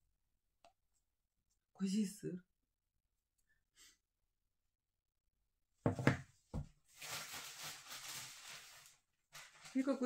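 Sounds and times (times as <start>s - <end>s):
items knocking on table: 5.8s - 6.7s
packaging rustling: 6.8s - 10.0s.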